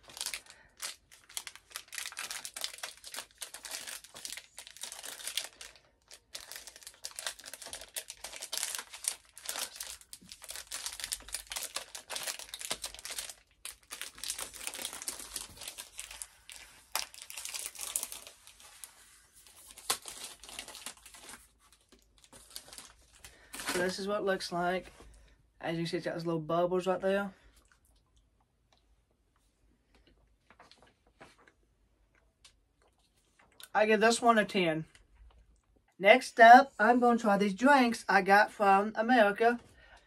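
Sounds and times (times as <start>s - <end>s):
wrapper crinkling and tearing: 0.0s - 24.1s.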